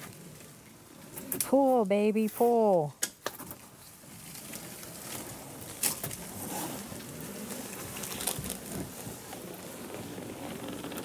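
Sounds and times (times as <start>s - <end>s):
leaves and branches scraping a boat: 3.6s - 11.0s.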